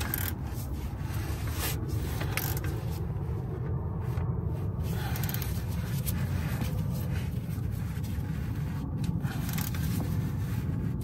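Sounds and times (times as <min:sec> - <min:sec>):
wrench clicking: 0:00.0 - 0:00.4
steady low rumble: 0:00.0 - 0:11.0.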